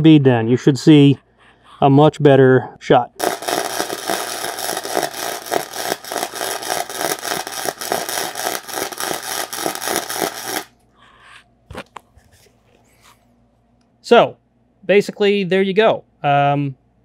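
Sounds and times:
arc welding crackling: 3.2 - 10.7.

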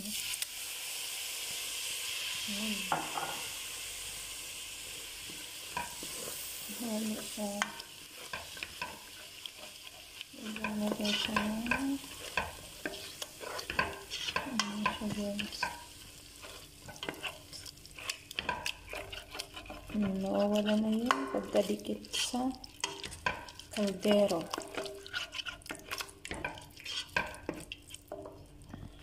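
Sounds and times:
sauce sizzling in pot: 0.0 - 29.0
spatula scraping pot bottom: 7.6 - 28.4.

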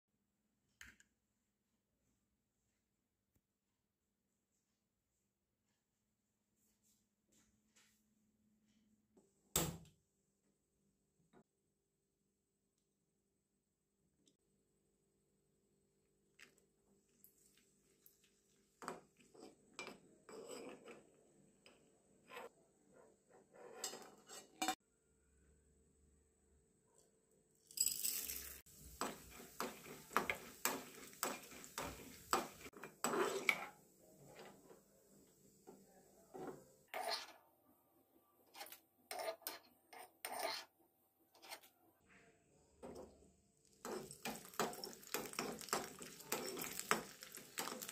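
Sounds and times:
ladle scraping and clinking on pan: 18.8 - 21.0, 23.4 - 24.8, 27.8 - 34.6, 43.8 - 47.9
lentils tipped into pan: 27.7 - 28.7
food frying in oil: 27.8 - 33.6, 43.6 - 47.9.

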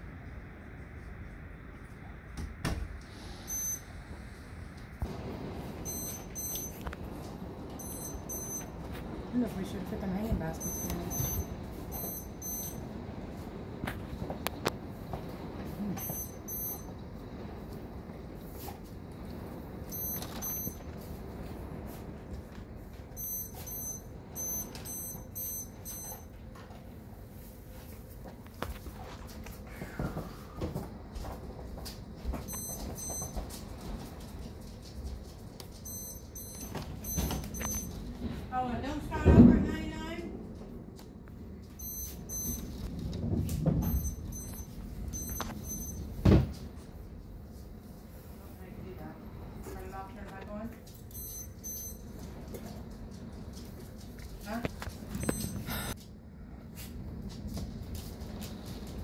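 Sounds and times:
short high-pitched beeps: 3.4 - 3.9, 5.8 - 6.8, 7.8 - 8.8, 10.6 - 12.8, 16.0 - 16.9, 19.9 - 20.8, 23.2 - 26.2, 32.5 - 33.4, 35.9 - 38.0, 41.8 - 42.8, 43.8 - 46.1, 51.1 - 52.0, 55.2 - 56.0
steady rain: 4.0 - 5.9, 6.8 - 10.6, 16.8 - 19.9
heavy rain: 4.4 - 5.9.

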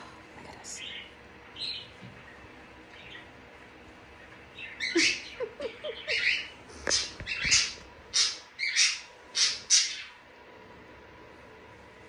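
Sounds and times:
cockatoo squawking: 4.7 - 10.1.

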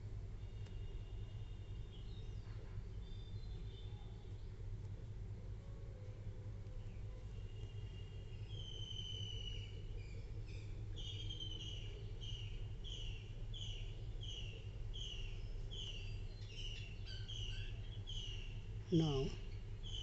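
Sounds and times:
steady low hum: 0.0 - 20.0
bird chirping: 6.9 - 20.0.

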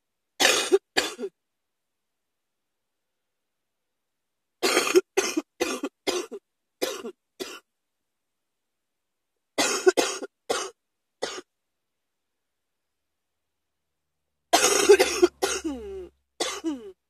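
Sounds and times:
person coughing: 0.4 - 1.3, 4.6 - 7.6, 9.6 - 11.5, 14.6 - 17.0.

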